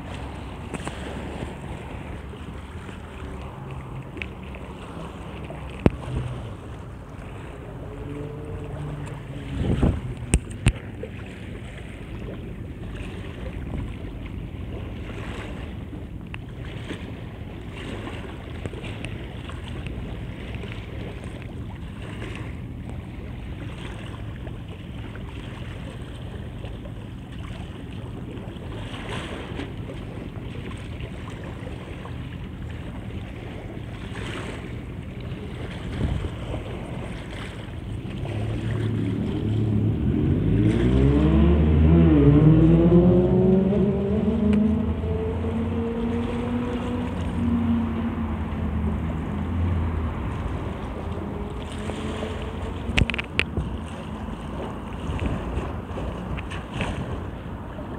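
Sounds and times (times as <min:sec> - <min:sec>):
waves lapping on shore: 0:00.0 - 0:57.9
wind buffeting microphone: 0:04.6 - 0:12.5, 0:29.0 - 0:57.9.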